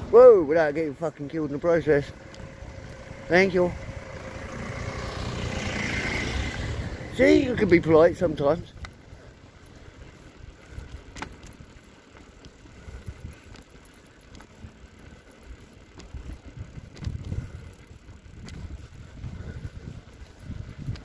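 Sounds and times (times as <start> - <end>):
bicycle tyres rumbling on tarmac: 0.0 - 21.0
light clicks: 8.8 - 9.0.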